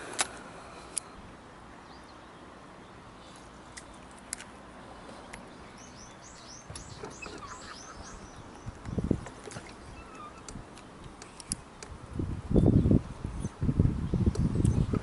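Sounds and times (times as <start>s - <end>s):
faint outdoor hiss: 0.0s - 15.0s
songbird chirping: 1.7s - 11.9s.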